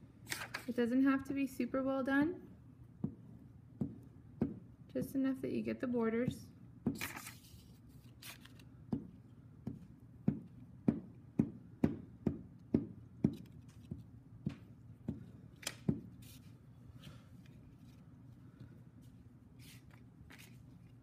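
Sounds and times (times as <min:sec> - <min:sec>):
paper rustling: 0:00.3 - 0:00.8, 0:07.0 - 0:08.7, 0:19.0 - 0:21.0.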